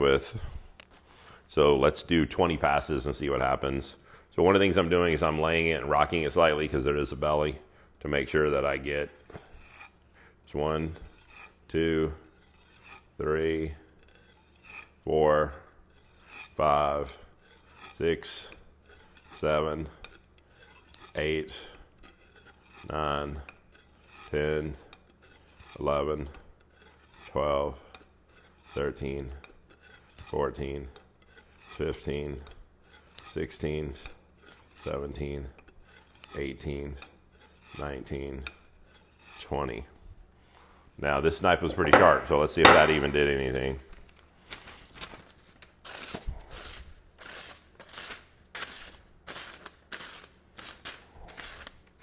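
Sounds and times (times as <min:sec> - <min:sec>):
knife scraping on whetstone: 0:08.6 - 0:10.1, 0:10.9 - 0:39.6, 0:45.8 - 0:52.0.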